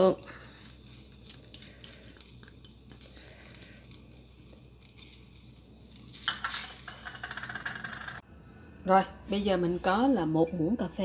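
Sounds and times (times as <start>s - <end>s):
stirring sauce in saucepan: 0.5s - 6.9s.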